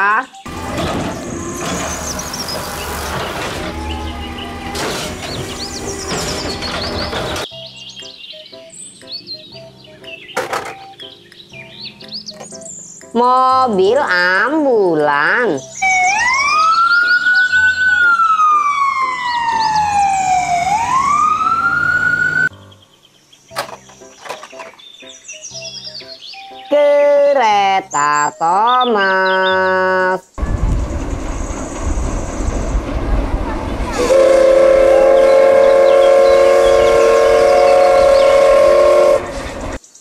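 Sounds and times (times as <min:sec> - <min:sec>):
hydraulic whine: 0:00.5 - 0:07.4
garbage truck engine rumble: 0:00.5 - 0:07.5, 0:30.4 - 0:39.8
music: 0:03.7 - 0:21.4, 0:22.5 - 0:29.3
ambulance siren wailing: 0:15.8 - 0:22.5.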